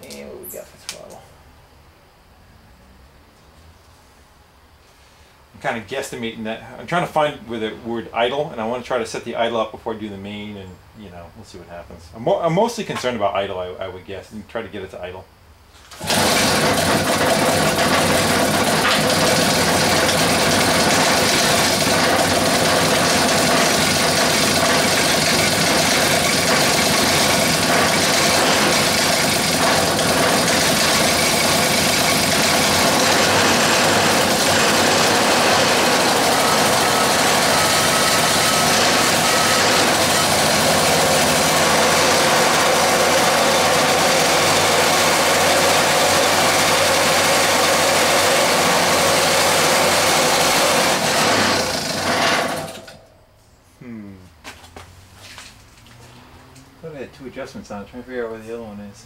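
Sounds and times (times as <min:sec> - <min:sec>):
small gas engine running: 0:15.9 - 0:53.0.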